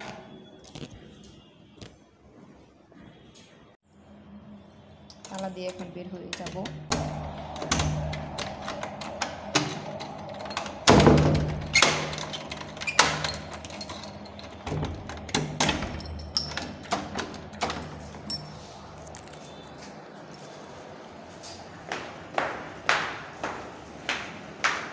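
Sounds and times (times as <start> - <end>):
keys jangling: 7.1 - 20.6.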